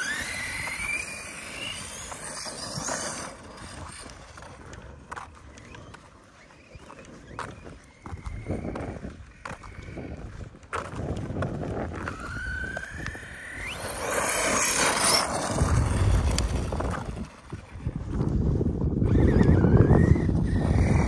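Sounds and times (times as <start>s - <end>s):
electric motor whining: 0.0s - 4.6s, 11.9s - 17.8s.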